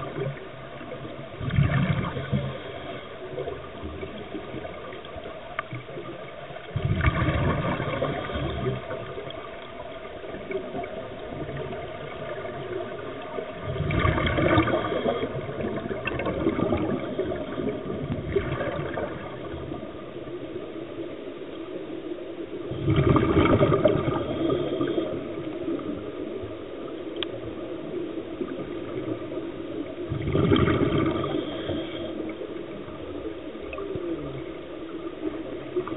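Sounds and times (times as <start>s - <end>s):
low water hiss: 0.0s - 35.9s
air bubbling underwater: 1.3s - 2.7s, 6.7s - 9.2s, 13.5s - 19.8s, 22.7s - 25.3s, 30.1s - 31.6s.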